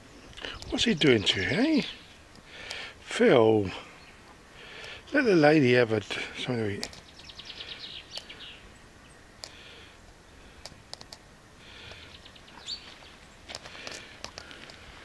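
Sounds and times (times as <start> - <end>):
faint bird chirps: 6.3 - 10.6, 11.6 - 13.5
light clicks and taps: 6.8 - 7.0, 13.5 - 14.8.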